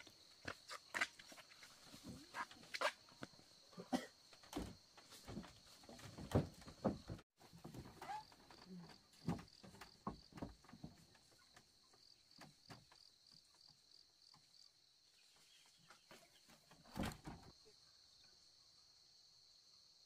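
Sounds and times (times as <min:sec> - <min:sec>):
insect chirping: 0:00.0 - 0:20.0
bamboo door shutting: 0:04.5 - 0:11.2, 0:16.7 - 0:17.5.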